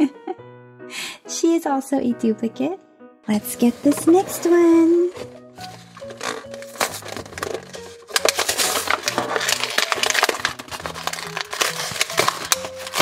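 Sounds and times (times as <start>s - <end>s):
soft background music: 0.0s - 13.0s
plastic packaging crinkling: 3.6s - 13.0s.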